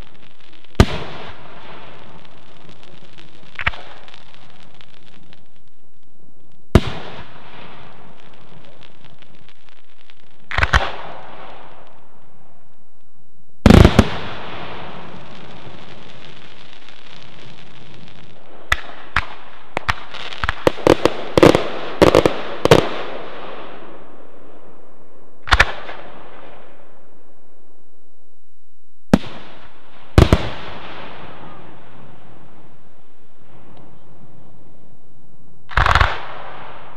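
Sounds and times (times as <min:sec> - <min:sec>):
firework shells bursting with echo: 0:00.0 - 0:13.0.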